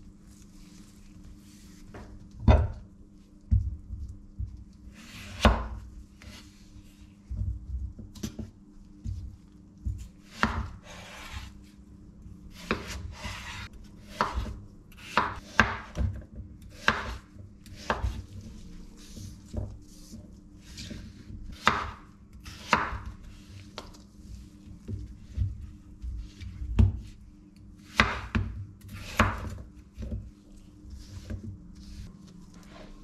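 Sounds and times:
knife scraping through potato: 0:04.9 - 0:06.6, 0:10.2 - 0:11.7, 0:12.5 - 0:15.9
knife chopping on cutting board: 0:05.0 - 0:06.4, 0:09.8 - 0:11.5, 0:12.6 - 0:18.2, 0:20.7 - 0:23.2, 0:27.8 - 0:30.2.

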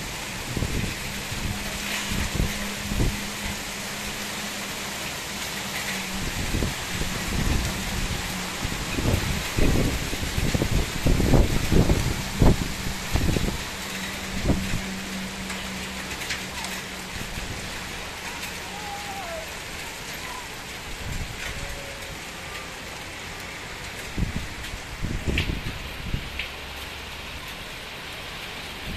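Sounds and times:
thunder rumbling: 0:00.0 - 0:22.7
heavy rain falling: 0:00.0 - 0:28.9.

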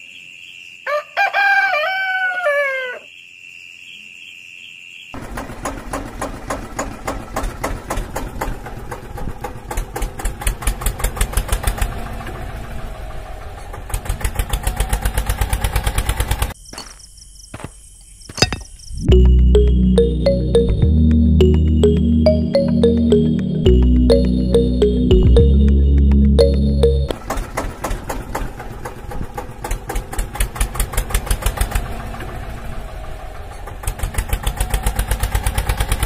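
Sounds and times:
rooster crowing: 0:00.8 - 0:03.1
engine chugging: 0:05.2 - 0:16.5
high chirring insects: 0:16.5 - 0:19.1.

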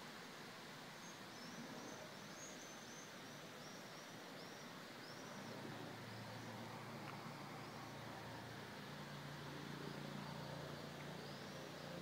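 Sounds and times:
outdoor hiss: 0:00.0 - 0:12.0.

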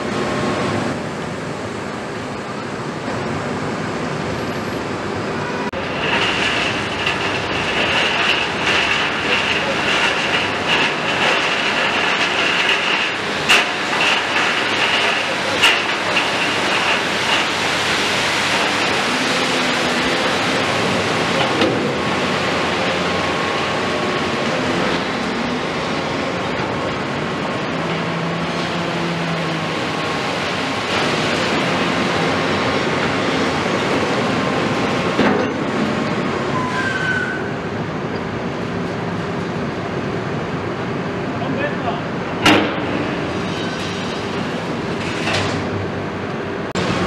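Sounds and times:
excavator diesel engine and hydraulics: 0:00.0 - 0:47.0
gravel pouring from truck bed: 0:05.8 - 0:21.3.

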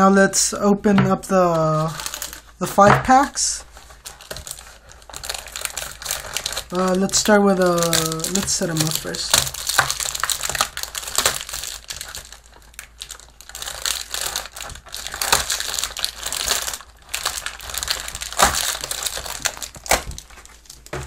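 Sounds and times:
foil wrappers crinkling: 0:01.5 - 0:21.0.

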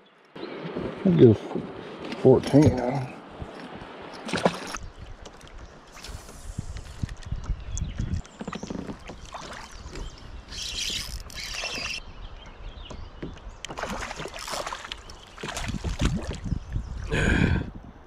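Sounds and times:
water splashing: 0:00.5 - 0:07.2, 0:08.1 - 0:12.0, 0:13.6 - 0:17.1.

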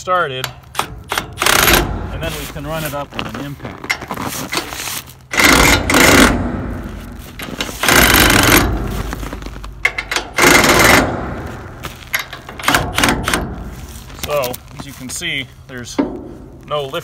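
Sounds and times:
impact wrench hammering: 0:00.4 - 0:02.1, 0:05.3 - 0:06.8, 0:07.8 - 0:08.9, 0:09.8 - 0:11.5, 0:12.2 - 0:13.6.

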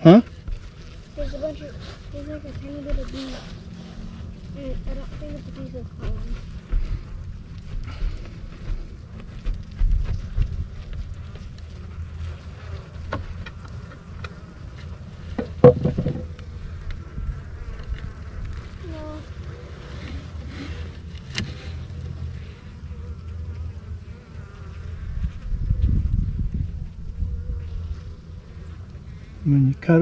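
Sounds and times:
honeybees buzzing: 0:00.0 - 0:30.0.

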